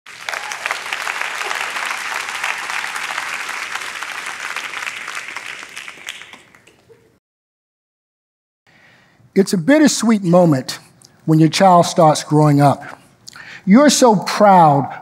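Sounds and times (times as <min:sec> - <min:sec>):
audience applause: 0:00.1 - 0:06.9.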